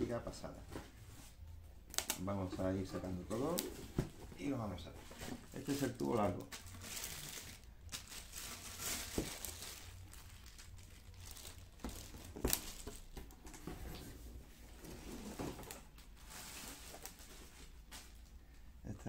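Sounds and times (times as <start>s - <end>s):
plastic bags crinkling: 4.4s - 13.7s, 15.6s - 18.4s.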